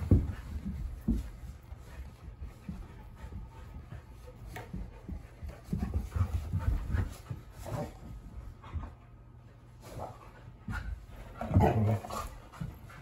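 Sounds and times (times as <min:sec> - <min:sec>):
soft thumps on carpet: 0:00.0 - 0:07.7
dog panting: 0:00.0 - 0:13.0.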